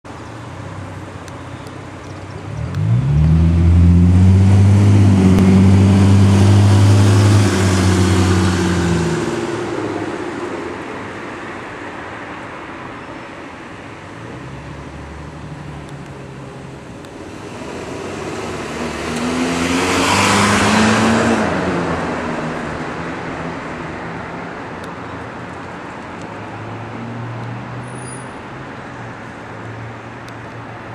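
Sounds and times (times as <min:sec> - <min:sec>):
vehicle engine revving: 0:02.4 - 0:09.7, 0:17.3 - 0:22.1
car passing by: 0:02.5 - 0:10.9, 0:17.3 - 0:23.2.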